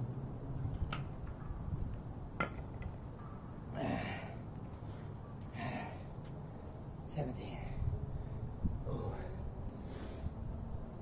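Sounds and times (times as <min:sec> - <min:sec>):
man breathing out heavily: 0:03.8 - 0:06.2, 0:08.9 - 0:10.4.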